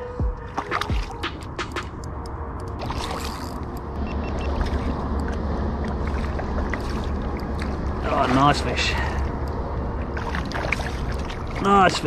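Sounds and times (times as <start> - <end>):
water around kayak: 2.7 - 12.0.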